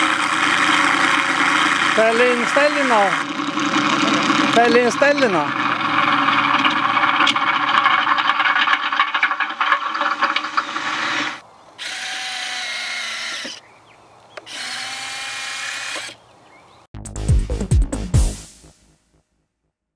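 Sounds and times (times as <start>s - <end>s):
landing gear motor whirring: 0.0s - 7.4s, 11.8s - 13.6s, 14.4s - 16.2s.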